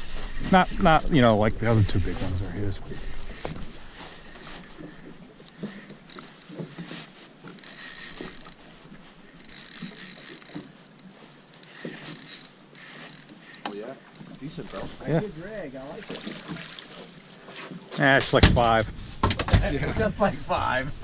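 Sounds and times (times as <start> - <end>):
water lapping at hull: 0.0 - 21.0
fishing reel being cranked: 5.6 - 6.6, 7.4 - 14.4.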